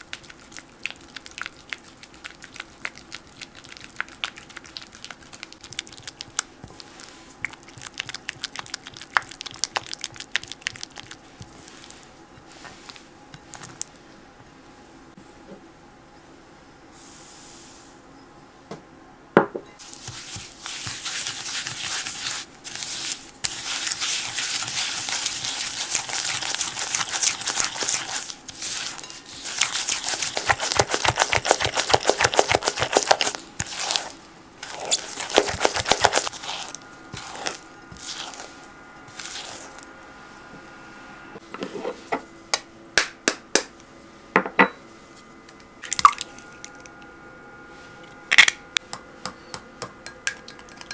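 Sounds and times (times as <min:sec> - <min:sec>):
spatula scraping glass bowl: 0:20.0 - 0:39.8.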